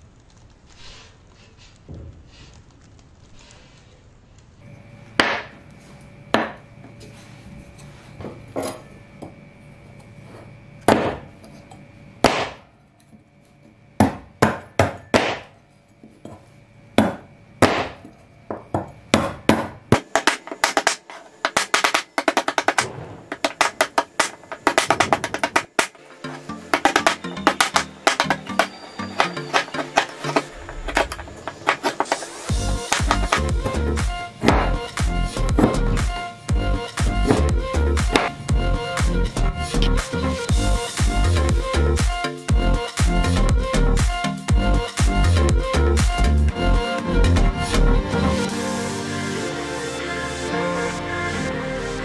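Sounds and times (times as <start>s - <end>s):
axe chopping wood: 5.2s - 5.5s, 10.9s - 11.3s, 12.2s - 12.6s, 14.0s - 15.6s, 17.0s - 18.1s, 19.2s - 26.0s, 26.7s - 33.6s, 34.4s - 34.8s, 37.2s - 38.4s
background music: 21.6s - 52.0s.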